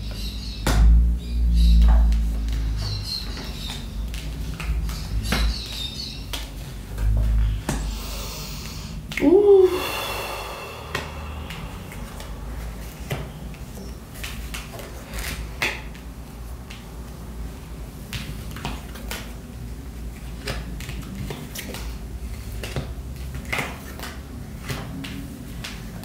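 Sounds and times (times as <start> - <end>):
steady low hum: 0.0 - 18.5.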